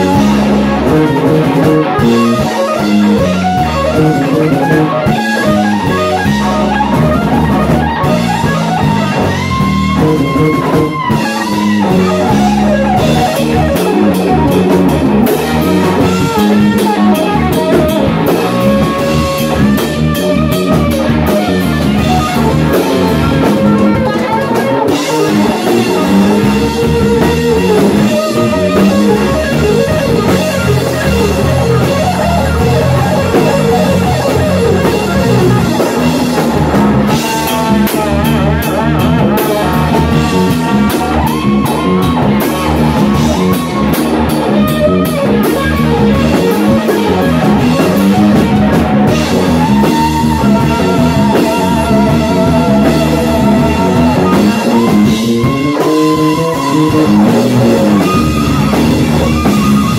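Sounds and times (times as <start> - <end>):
bass guitar: 0.0 - 59.9
drums: 0.0 - 59.9
electric guitar solo: 0.0 - 59.9.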